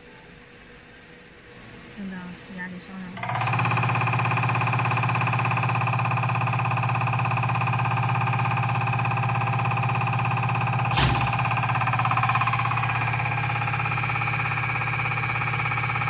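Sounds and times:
test bench motor and pump running: 0.0s - 16.0s
sharp click: 10.9s - 11.4s.

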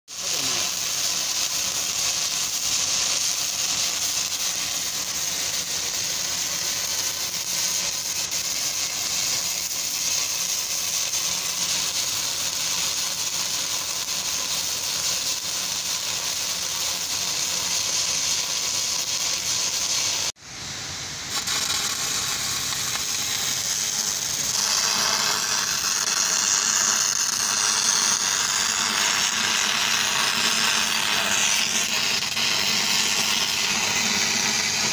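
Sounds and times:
welding arc crackling hiss: 0.1s - 34.9s.

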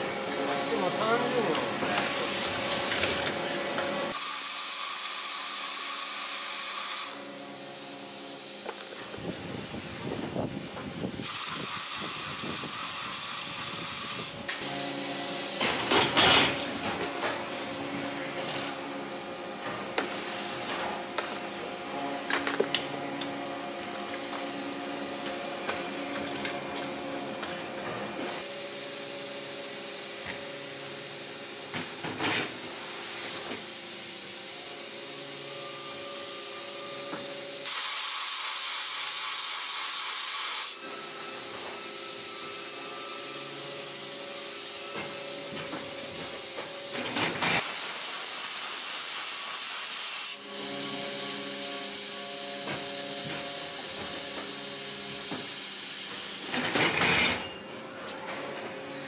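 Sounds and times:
coolant hiss: 47.6s - 56.5s.

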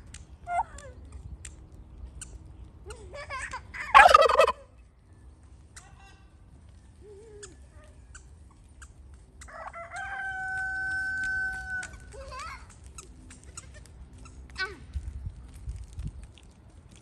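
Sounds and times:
rooster crowing: 9.4s - 12.0s.

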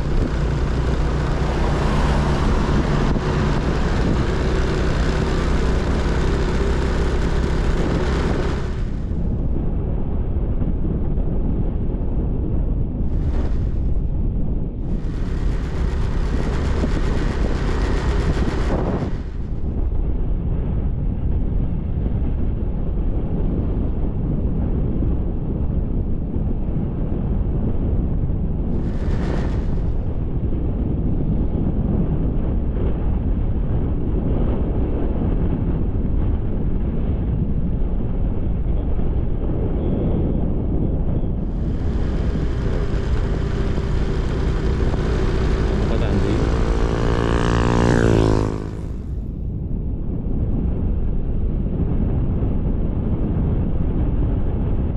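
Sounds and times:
motorcycle engine and tyres: 0.0s - 10.5s, 13.0s - 20.2s, 28.6s - 32.6s, 35.1s - 51.6s
wind rushing over microphone: 0.0s - 54.9s.

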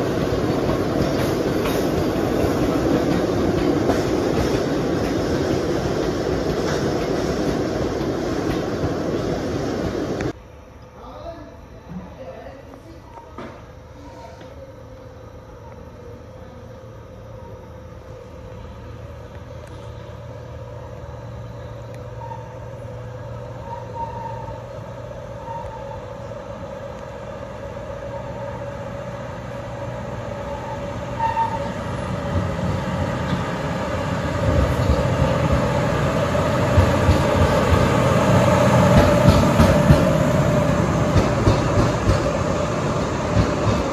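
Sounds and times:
wheels rumbling on rail: 0.0s - 10.4s, 13.0s - 43.9s
locomotive engine drone: 0.0s - 11.9s, 12.7s - 43.9s.

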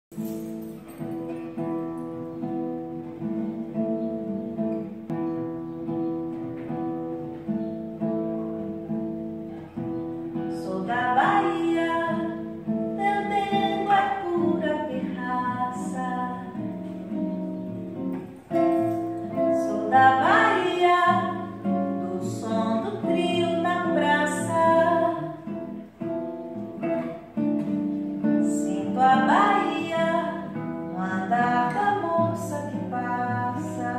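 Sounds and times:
acoustic guitar playing: 0.1s - 33.9s
woman singing: 10.4s - 16.9s, 19.3s - 25.7s, 28.2s - 33.9s.

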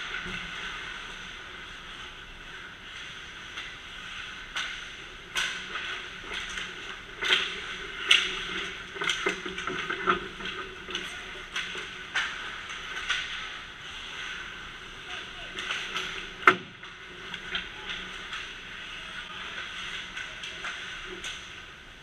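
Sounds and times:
skates scraping ice: 0.0s - 21.7s
steady background hiss: 0.0s - 22.0s
stick and puck clacks: 4.5s - 13.6s, 15.0s - 21.6s.

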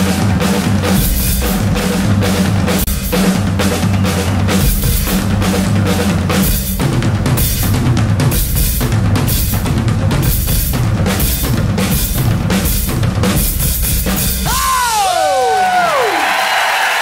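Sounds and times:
drum kits playing loud rhythm: 0.0s - 17.0s
crowd cheering: 3.5s - 5.0s, 14.4s - 17.0s
applause: 14.6s - 17.0s.

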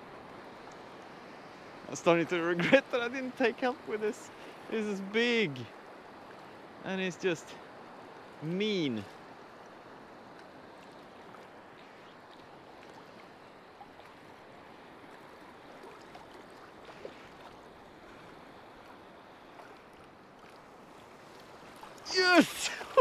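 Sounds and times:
small waves lapping: 0.0s - 23.0s
faint ticks: 10.3s - 13.3s.

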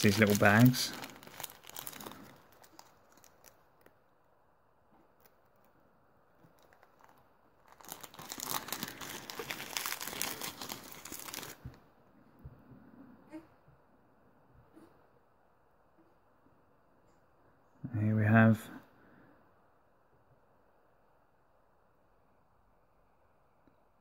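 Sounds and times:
plastic bag crinkling and tearing: 0.0s - 4.0s, 6.4s - 11.7s.

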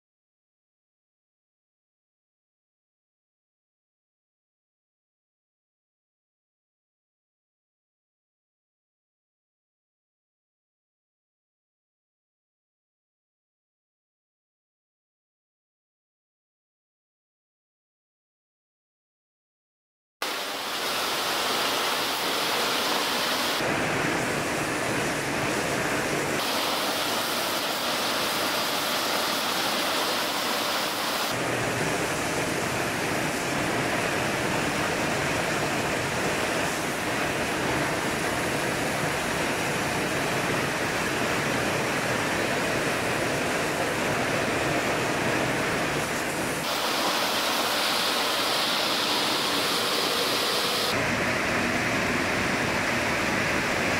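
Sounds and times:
water spray hissing on metal: 20.2s - 25.8s, 26.4s - 40.4s, 44.0s - 51.0s.

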